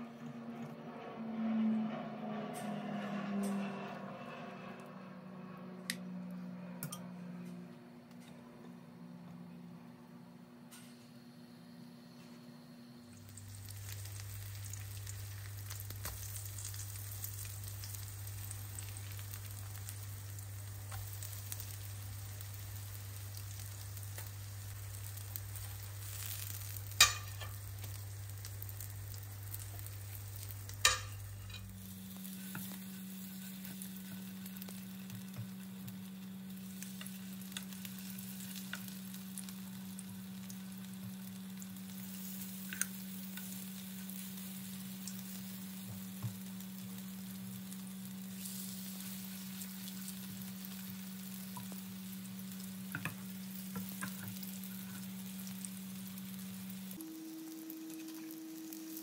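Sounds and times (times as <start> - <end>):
steady low hum: 0.0 - 59.0
fritters sizzling in oil: 12.1 - 59.0.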